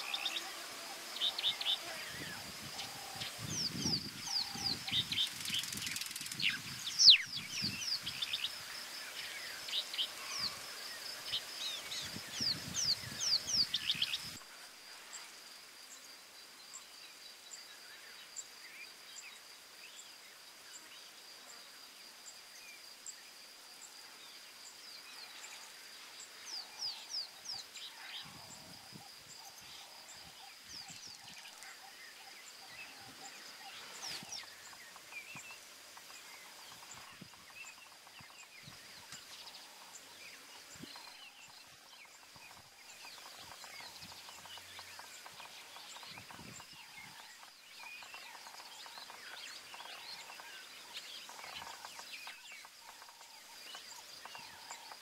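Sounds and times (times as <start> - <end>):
birds chirping: 0.0 - 14.4, 26.5 - 55.0.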